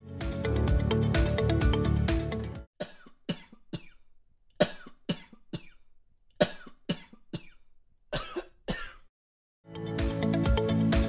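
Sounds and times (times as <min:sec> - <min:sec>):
person coughing: 0:02.8 - 0:09.1.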